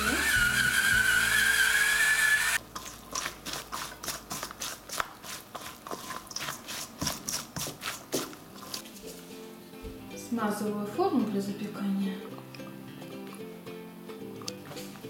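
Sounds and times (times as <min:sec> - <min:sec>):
electric pepper mill grinding: 0:00.0 - 0:05.4
spatula scraping steel bowl: 0:00.0 - 0:09.1.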